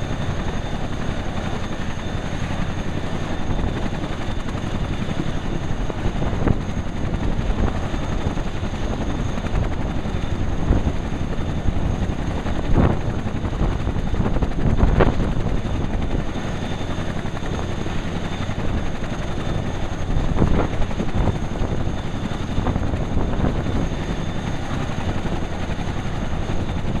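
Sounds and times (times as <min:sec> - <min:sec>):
helicopter engine whine: 0:00.0 - 0:27.0.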